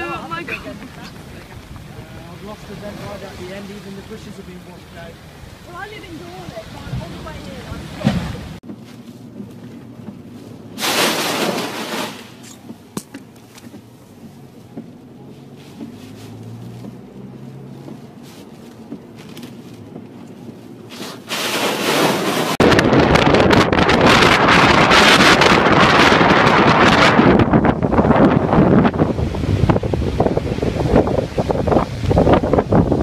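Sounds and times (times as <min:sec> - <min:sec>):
storm wind and water rushing: 0:00.0 - 0:08.6, 0:15.8 - 0:33.0
wind blowing on microphone: 0:00.0 - 0:08.6, 0:22.0 - 0:33.0.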